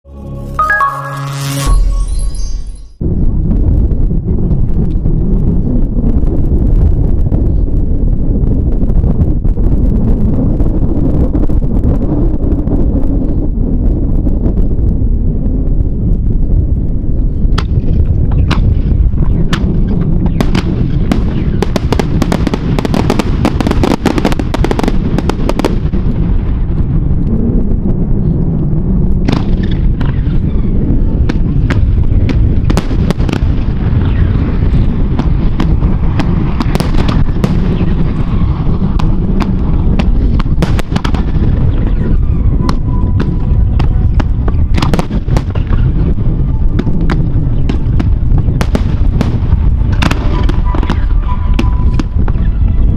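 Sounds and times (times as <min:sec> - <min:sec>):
wind rumble on microphone: 0:01.8 - 0:52.9
fireworks bangs and crackles: 0:03.0 - 0:52.9.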